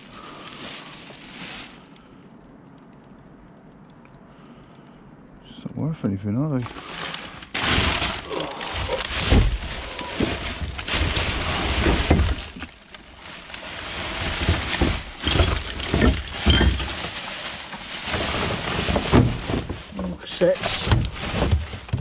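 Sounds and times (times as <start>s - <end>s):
plastic bags rustling and crackling: 0.0s - 3.1s, 6.6s - 22.0s
dull knocks and thumps: 6.7s - 12.7s, 13.6s - 19.9s, 20.6s - 22.0s.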